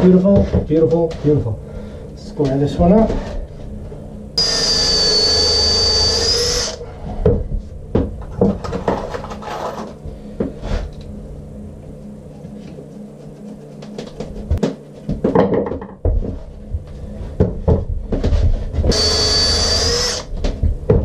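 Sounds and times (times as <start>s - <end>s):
power drill whining: 4.4s - 6.8s, 18.9s - 20.3s
tools and wood knocking: 15.2s - 16.2s.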